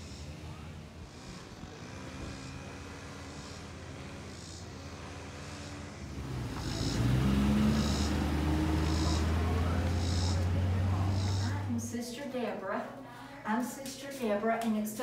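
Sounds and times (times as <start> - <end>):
low motor hum: 0.0 - 12.0.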